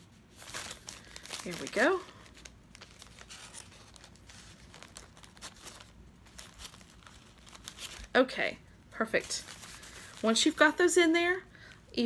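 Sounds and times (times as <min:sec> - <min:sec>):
paper bags rustling: 0:00.3 - 0:08.4, 0:09.1 - 0:11.1.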